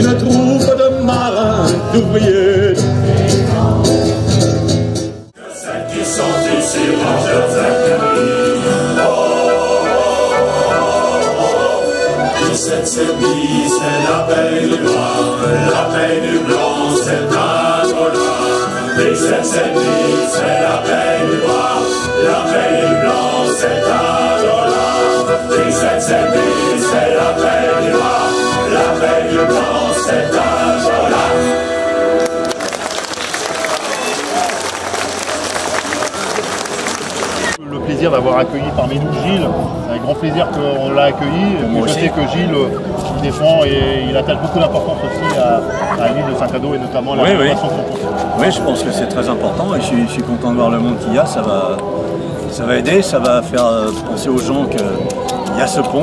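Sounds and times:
men's choir singing: 0.0s - 4.2s, 5.4s - 32.2s, 40.3s - 52.9s
accordion playing a tune: 5.4s - 32.8s, 44.2s - 52.6s.

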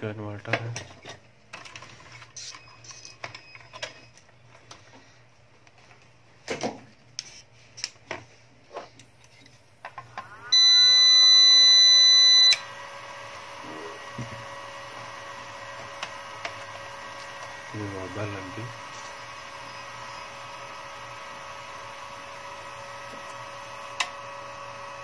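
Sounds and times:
electrical whine and hum: 0.0s - 25.0s
loud buzzer beep: 10.5s - 12.7s.

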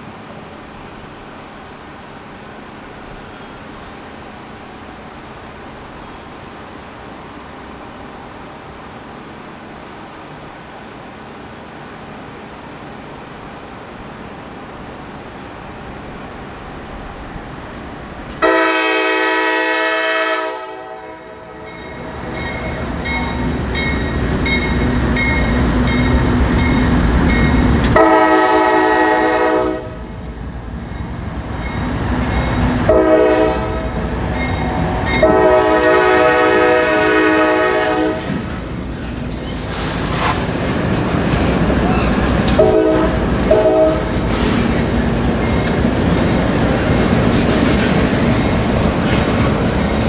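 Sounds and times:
locomotive air horn blasts: 18.4s - 21.7s, 28.0s - 30.0s, 32.9s - 34.0s, 35.0s - 38.3s, 42.5s - 44.1s.

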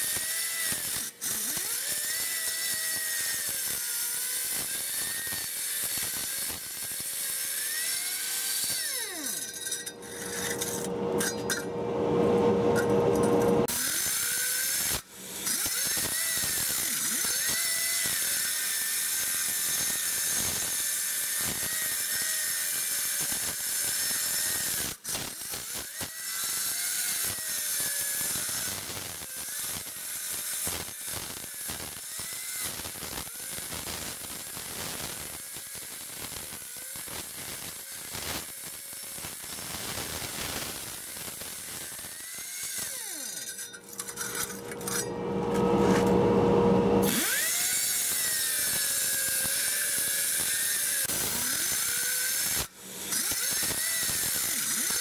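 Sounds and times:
cutting wheel grinding concrete: 0.0s - 20.2s, 40.9s - 55.0s
louder lower hum: 9.8s - 13.7s, 43.9s - 47.1s.

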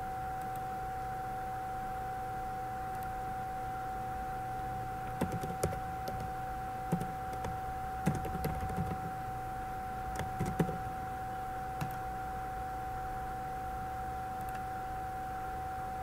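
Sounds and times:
keyboard and mouse clicks: 5.2s - 6.3s, 6.9s - 9.2s, 10.1s - 10.8s, 11.8s - 12.0s.

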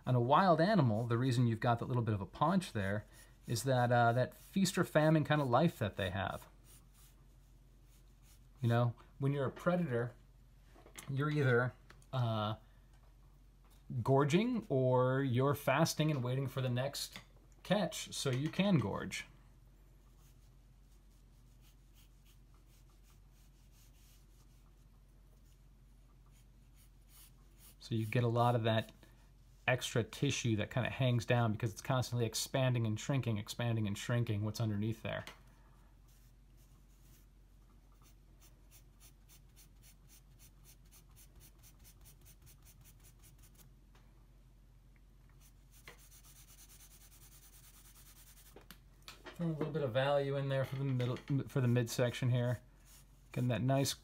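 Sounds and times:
pencil scratching on paper: 4.3s - 5.8s, 6.6s - 8.5s, 20.2s - 25.6s, 26.3s - 28.2s, 36.1s - 43.6s, 45.4s - 48.5s.

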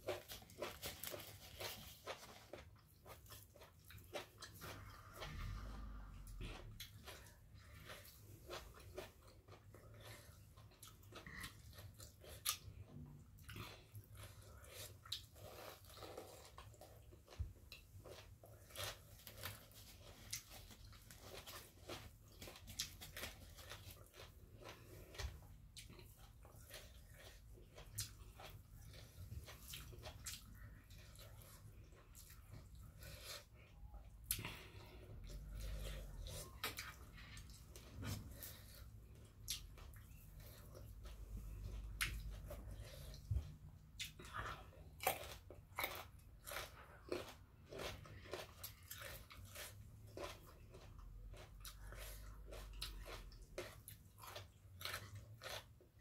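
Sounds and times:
person chewing food: 0.0s - 56.0s.

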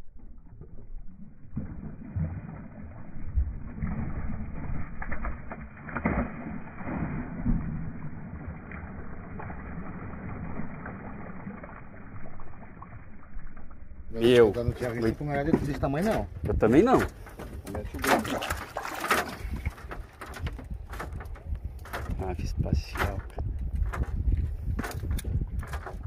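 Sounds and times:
fish thrashing and splashing: 0.3s - 13.8s, 17.1s - 22.2s.

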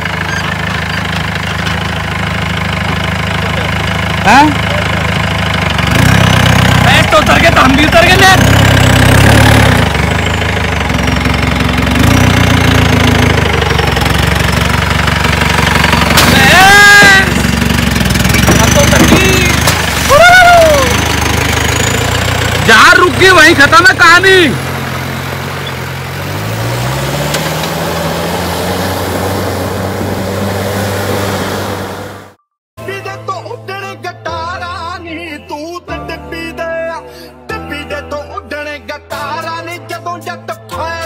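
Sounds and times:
jeep engine idling: 0.0s - 8.4s, 9.8s - 30.2s
tyres churning mud and water: 18.3s - 23.7s.

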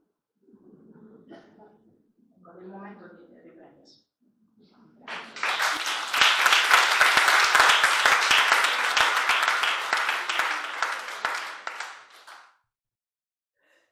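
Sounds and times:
audience applauding: 5.1s - 12.5s.

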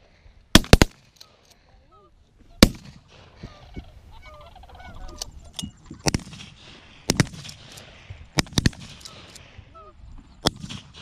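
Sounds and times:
shotgun shots: 0.6s - 1.1s, 2.6s - 3.2s, 6.0s - 7.7s, 8.4s - 9.3s, 10.4s - 11.0s
geese honking overhead: 1.9s - 6.0s.

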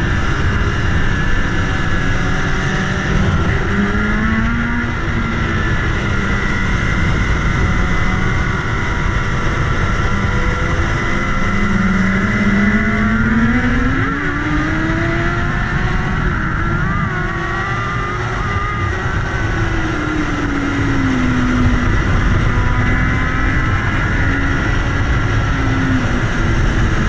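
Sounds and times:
motorcycle engine accelerating: 0.0s - 27.0s
wind rush: 0.0s - 27.0s.

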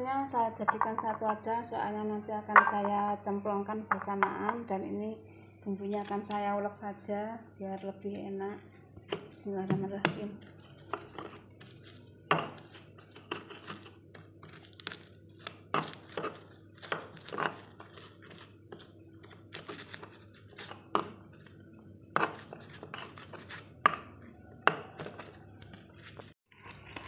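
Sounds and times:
stone pestle grinding on stone: 12.3s - 14.0s, 15.7s - 18.9s, 22.2s - 26.3s.

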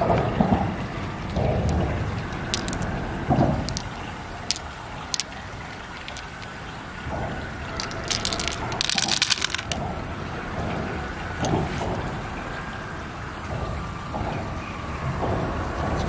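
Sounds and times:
low rumbling background: 0.0s - 16.0s
pearls clicking together: 1.3s - 6.8s, 7.7s - 9.9s.

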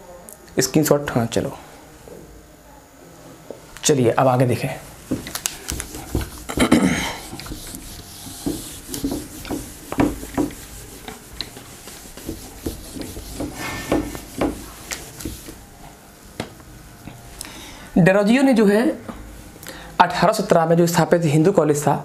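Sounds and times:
whiteboard being wiped: 4.8s - 15.6s.

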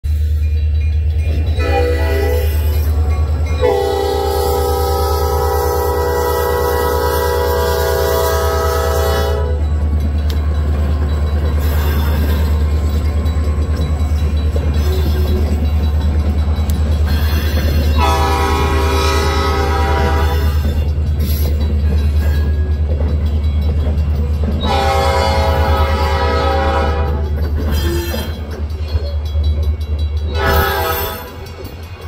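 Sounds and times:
diesel locomotive engines rumbling: 0.0s - 32.0s
rail noise: 0.0s - 32.0s
locomotive air horn: 1.6s - 2.6s, 3.6s - 9.6s, 18.0s - 20.6s, 24.6s - 28.2s, 30.3s - 31.4s.

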